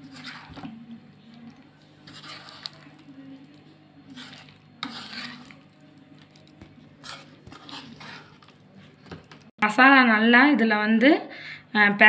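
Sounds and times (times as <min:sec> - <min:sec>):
spoon scraping in a bowl: 0:00.0 - 0:00.8, 0:01.4 - 0:09.4.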